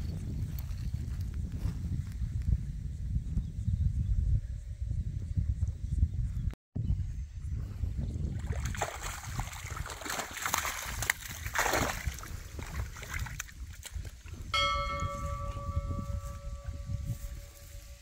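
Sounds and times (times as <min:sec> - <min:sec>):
water splashing off a net: 0:08.4 - 0:14.0
steady multi-pitch tone: 0:14.6 - 0:18.0.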